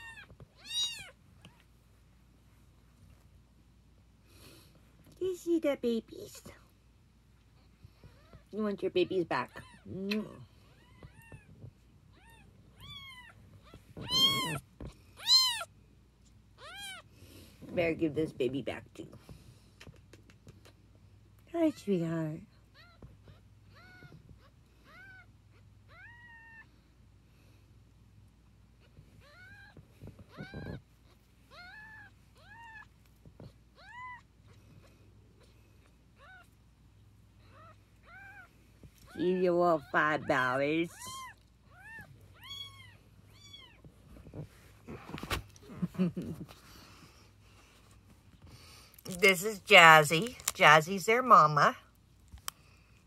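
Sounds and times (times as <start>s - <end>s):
kitten mewing: 14.0s - 15.7s.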